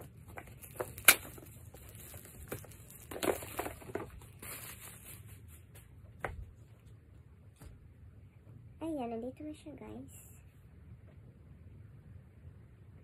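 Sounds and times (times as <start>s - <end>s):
packaging wrap crinkling: 0.0s - 5.8s.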